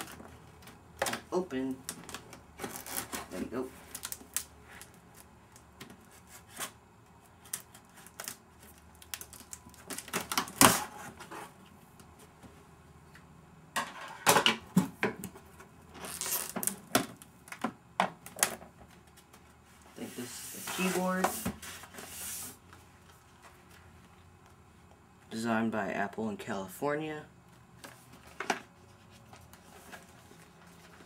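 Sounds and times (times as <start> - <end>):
cardboard packaging rustling: 0.0 - 11.6, 15.9 - 17.2, 18.3 - 24.0.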